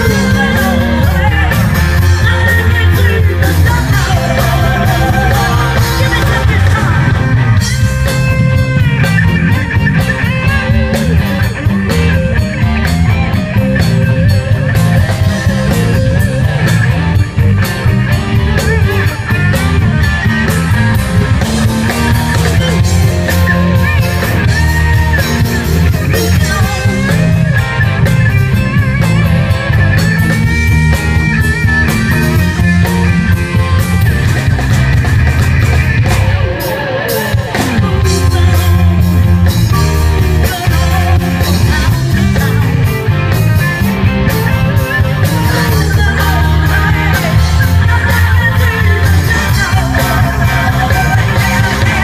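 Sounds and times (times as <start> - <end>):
woman singing: 0.0 - 7.3, 36.6 - 42.7, 45.1 - 52.0
live rock band playing: 0.0 - 52.0.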